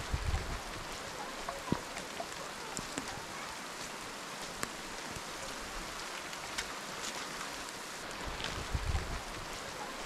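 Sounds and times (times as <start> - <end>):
steady rain: 0.0 - 10.0.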